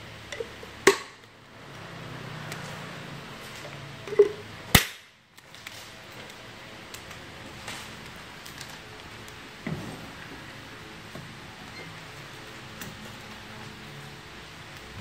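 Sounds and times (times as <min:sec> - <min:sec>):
sharp plastic snap: 0:04.8 - 0:05.1.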